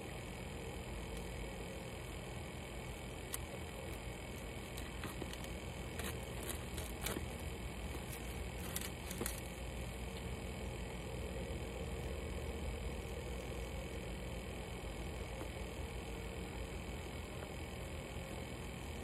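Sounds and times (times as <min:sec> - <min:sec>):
low background hum: 0:00.0 - 0:19.0
fingernails scratching cardboard: 0:04.6 - 0:07.4.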